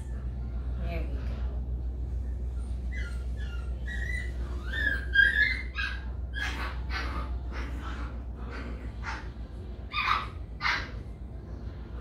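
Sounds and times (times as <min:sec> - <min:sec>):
low hum: 0:00.0 - 0:12.0
puppy whining: 0:02.1 - 0:11.2.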